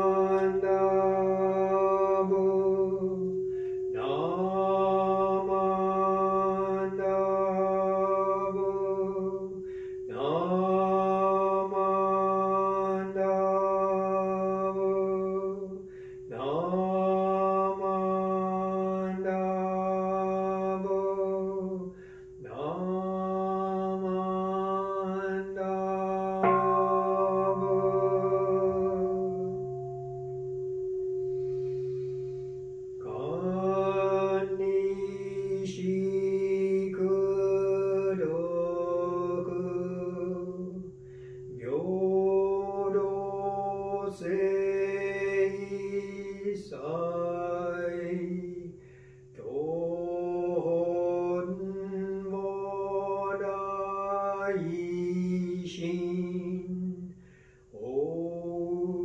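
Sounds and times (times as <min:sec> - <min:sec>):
man chanting: 0:00.0 - 0:03.4, 0:04.0 - 0:30.2, 0:33.0 - 0:59.0
steady low drone: 0:22.4 - 0:51.9.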